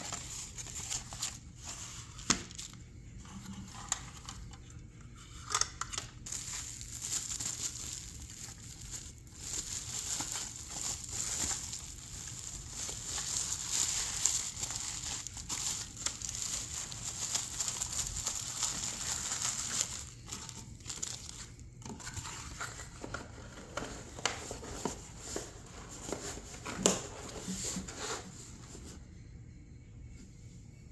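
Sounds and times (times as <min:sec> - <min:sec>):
bubble wrap crinkling: 0:00.0 - 0:02.9, 0:05.5 - 0:23.2.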